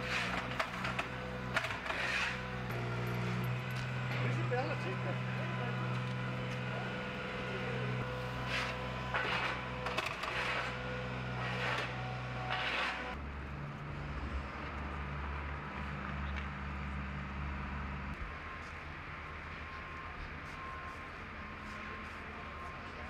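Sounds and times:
short scraping noises: 0.0 - 2.7, 8.3 - 10.8, 11.4 - 13.2
low engine hum: 0.0 - 21.5.

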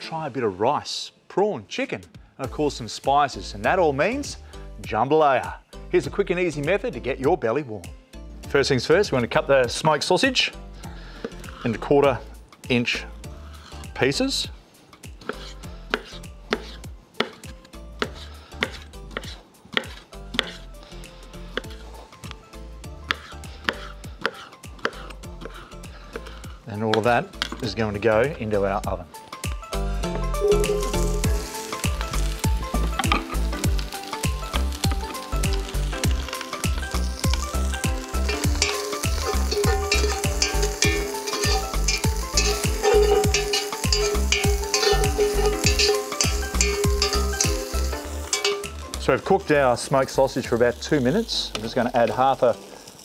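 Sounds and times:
sausage sizzling in a pot: 8.2 - 53.0
utensil scraping a pot: 11.1 - 11.9, 13.2 - 14.0, 15.2 - 20.8, 23.0 - 26.7, 35.1 - 49.0.

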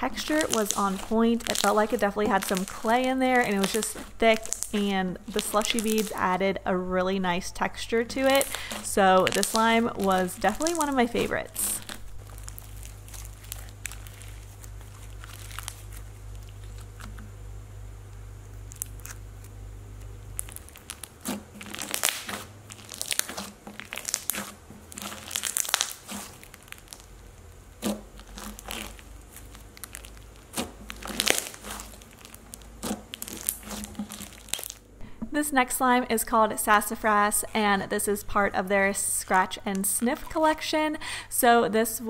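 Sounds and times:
slime crackling sticky pops: 0.0 - 6.2, 8.1 - 17.3, 18.5 - 34.8
low steady hum: 0.0 - 42.0.

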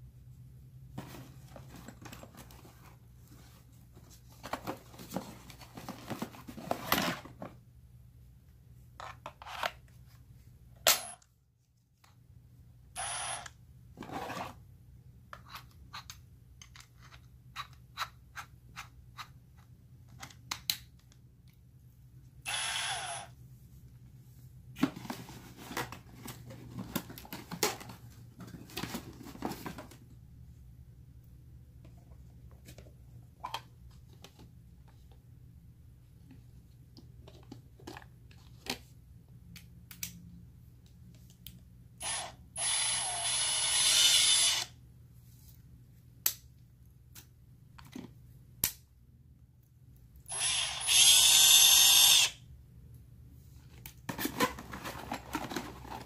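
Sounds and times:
cardboard and bag rustling: 1.0 - 7.6, 24.8 - 30.0, 54.1 - 56.0.

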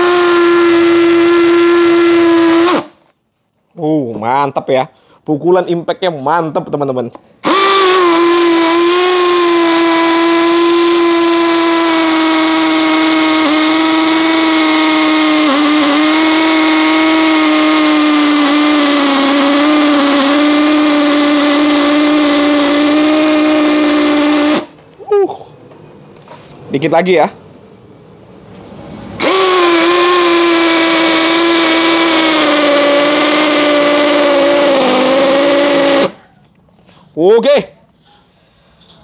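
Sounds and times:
impact drill boring concrete: 0.0 - 3.0, 7.4 - 24.8, 29.2 - 36.2.

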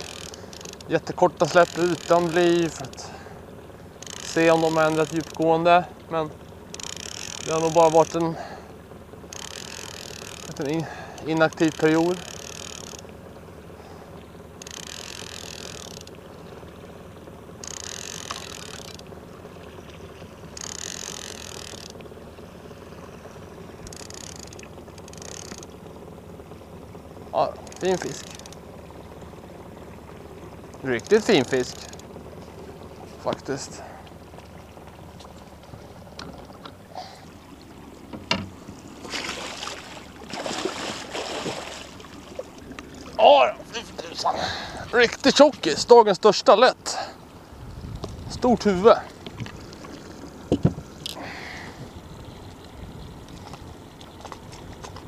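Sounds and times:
outboard motor running: 0.0 - 55.0
light knocks: 38.1 - 38.6, 50.4 - 50.9
fish splashing in water: 38.7 - 43.2.

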